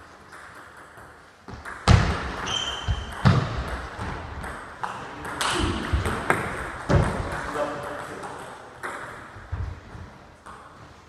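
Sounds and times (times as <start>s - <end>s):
high squeak: 2.4s - 3.1s.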